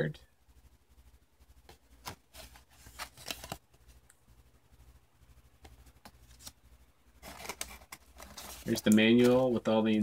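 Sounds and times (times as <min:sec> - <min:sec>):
faint low hum: 0:00.0 - 0:10.0
card and cardboard box rustling: 0:01.7 - 0:04.0, 0:07.2 - 0:09.6.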